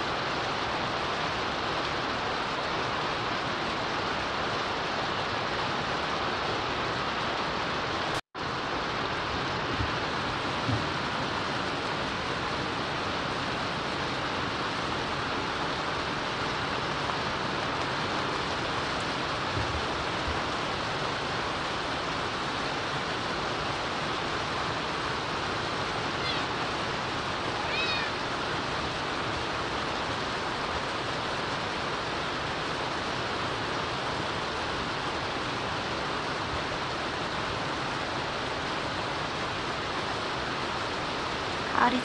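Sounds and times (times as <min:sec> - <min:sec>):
rain on windows and roof: 0:00.0 - 0:42.0
faint high calls: 0:26.1 - 0:26.6, 0:27.6 - 0:28.2.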